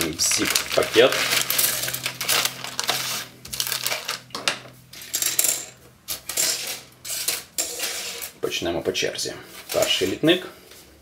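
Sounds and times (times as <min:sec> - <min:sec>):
plastic clattering and rustling: 0:00.0 - 0:05.4.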